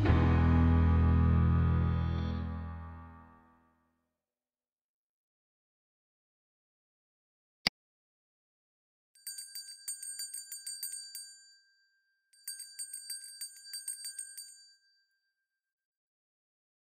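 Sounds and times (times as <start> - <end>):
small bell rung rapidly: 9.2 - 15.3.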